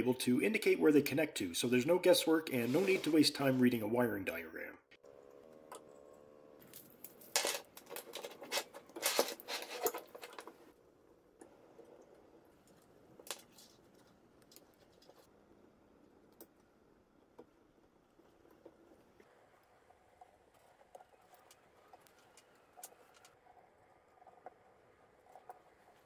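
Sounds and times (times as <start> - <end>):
metal parts clinking and rattling: 6.7 - 10.5.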